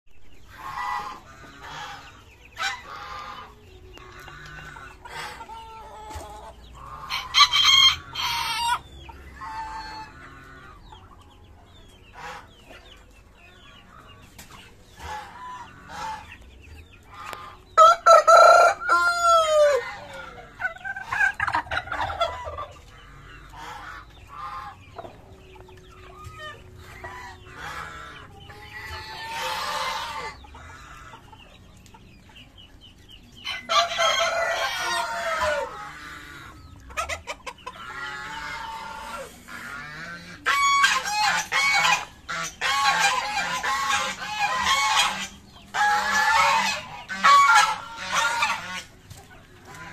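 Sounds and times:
chickens clucking: 0.1s - 49.9s
rooster crowing: 17.8s - 19.9s.

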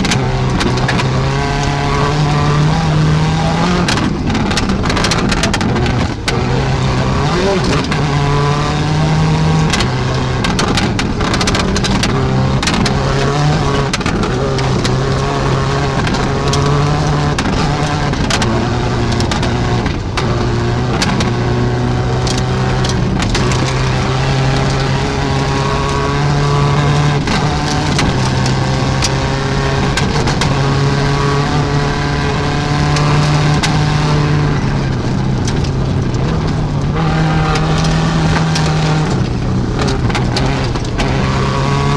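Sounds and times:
rally car engine revving: 0.0s - 41.9s
sharp cracks and clatters: 3.8s - 6.4s, 9.6s - 21.4s, 32.8s - 41.5s.

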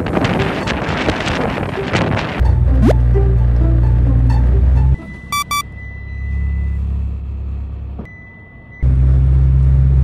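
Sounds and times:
short electronic beeps: 5.3s - 5.6s.

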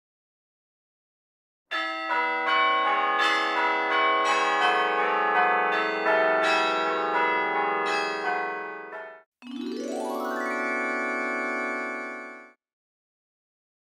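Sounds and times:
bells ringing: 1.7s - 12.6s.

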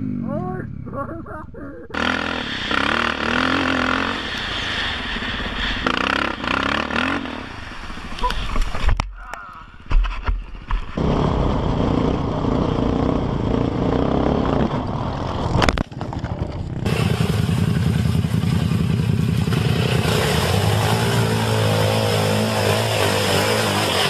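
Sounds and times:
atv engine revving: 1.9s - 8.3s, 10.9s - 24.0s
atv engine running hard: 1.9s - 8.6s, 10.8s - 24.0s
wind rushing: 2.4s - 8.9s.

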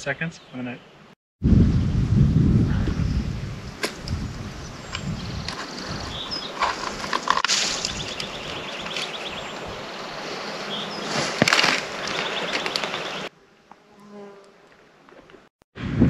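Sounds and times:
brush and gear rustling: 5.5s - 9.6s, 10.2s - 13.3s.

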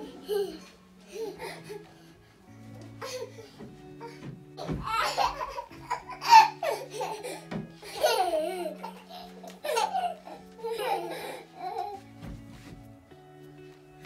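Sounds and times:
small children laughing and squealing: 0.0s - 1.9s, 3.0s - 12.0s
soft background music: 0.0s - 14.0s.

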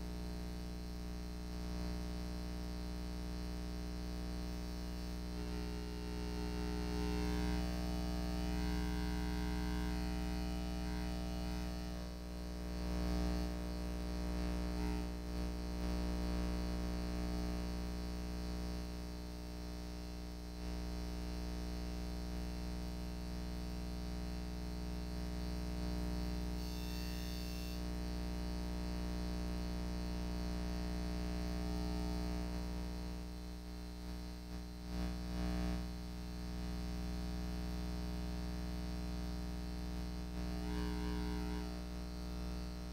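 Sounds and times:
electrical hum: 4.4s - 15.1s, 26.4s - 27.9s, 38.4s - 42.9s.

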